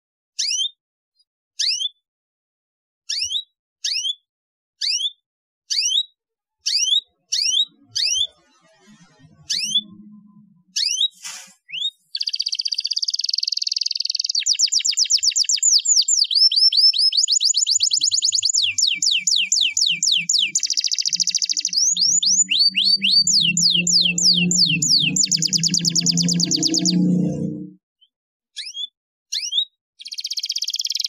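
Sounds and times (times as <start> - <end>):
canary singing: 4.8 - 11.1, 11.7 - 27.7, 28.6 - 31.0.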